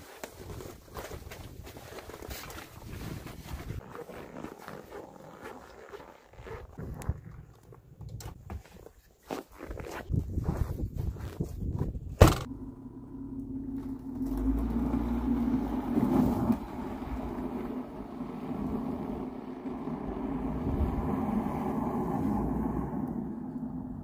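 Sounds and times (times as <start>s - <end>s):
minivan engine running: 12.5s - 23.2s.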